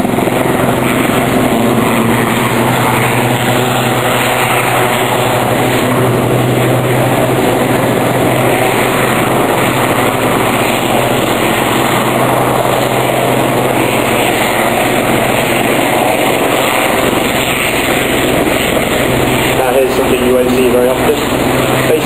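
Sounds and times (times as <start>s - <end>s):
helicopters flying past: 0.0s - 22.0s.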